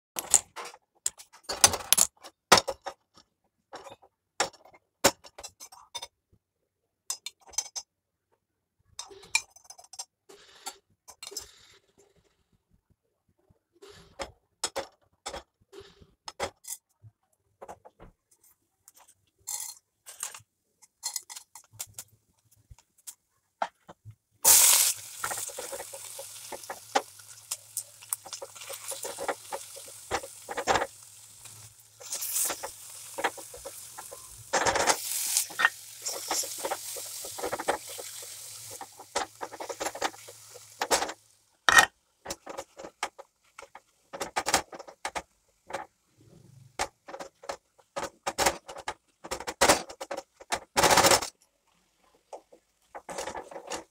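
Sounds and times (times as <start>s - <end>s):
onions sizzling in oil: 24.4s - 41.4s
spatula scraping and tapping pan: 24.9s - 45.9s, 52.3s - 53.9s.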